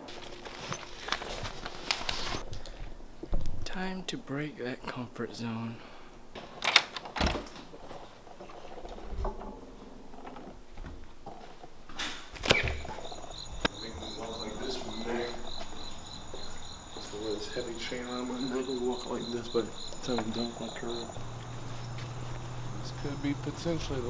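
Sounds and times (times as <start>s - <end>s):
crickets chirping: 0.0s - 2.4s, 12.4s - 24.0s.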